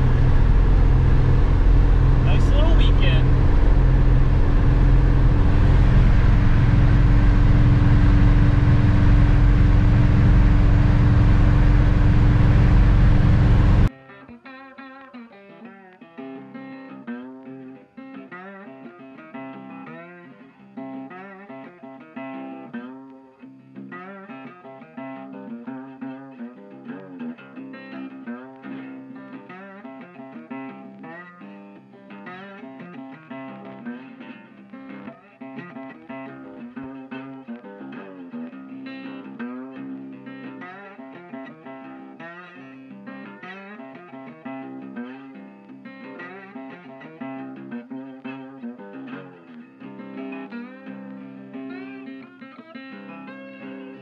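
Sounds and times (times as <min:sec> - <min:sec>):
car engine drone: 0:00.0 - 0:13.9
road and wind noise: 0:00.0 - 0:13.9
plucked and strummed guitar: 0:00.0 - 0:54.0.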